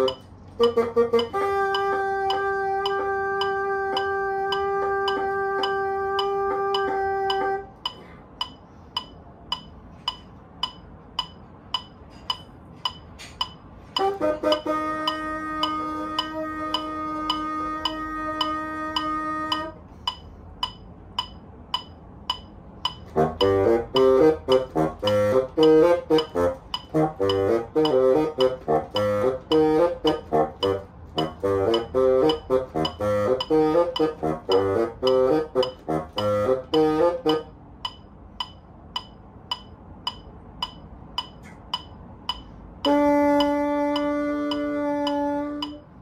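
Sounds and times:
held bassoon note: 0:00.0 - 0:08.1, 0:13.9 - 0:20.3, 0:22.8 - 0:38.0, 0:42.7 - 0:46.0
metronome ticking: 0:00.0 - 0:46.0.

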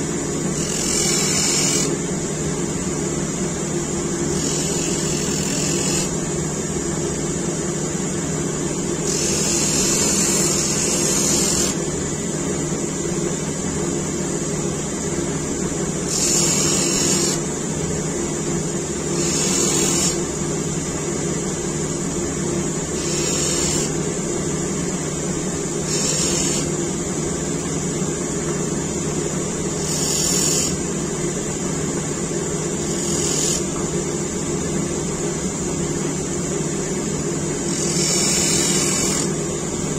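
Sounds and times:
bench grinder motor humming: 0:00.0 - 0:02.0, 0:04.2 - 0:06.2, 0:09.0 - 0:11.8, 0:16.0 - 0:17.5, 0:19.0 - 0:20.3, 0:22.9 - 0:24.0, 0:25.8 - 0:26.7, 0:29.8 - 0:30.8, 0:32.8 - 0:33.9, 0:37.6 - 0:39.3
steel blade hissing on grinding wheel: 0:00.6 - 0:02.0, 0:04.4 - 0:06.1, 0:09.0 - 0:11.8, 0:16.1 - 0:17.4, 0:19.1 - 0:20.2, 0:23.0 - 0:24.0, 0:25.9 - 0:26.7, 0:29.8 - 0:30.8, 0:32.8 - 0:33.7, 0:37.7 - 0:39.3.

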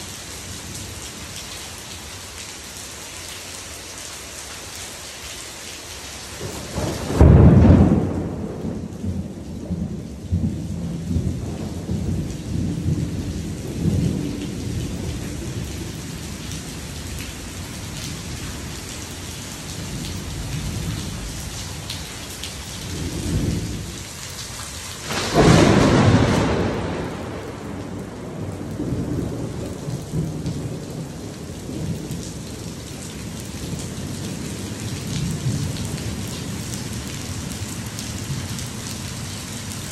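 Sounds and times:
heavy rain on pool: 0:00.0 - 0:39.9
thunderclaps with rumbling: 0:06.4 - 0:24.1, 0:25.0 - 0:39.2.

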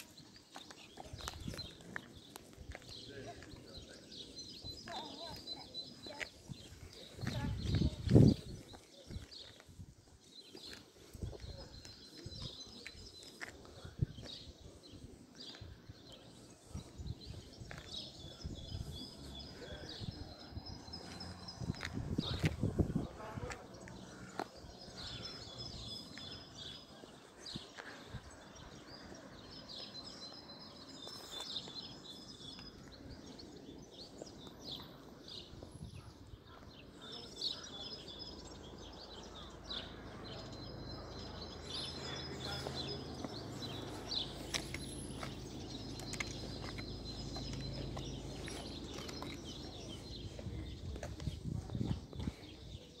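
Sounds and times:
bird chirping: 0:23.8 - 0:51.1.

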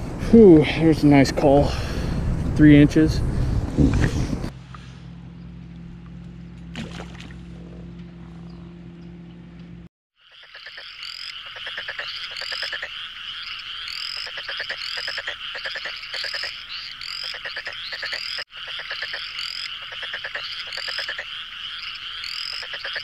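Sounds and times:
steady low hum: 0:00.0 - 0:09.9
frogs croaking: 0:10.2 - 0:23.0.

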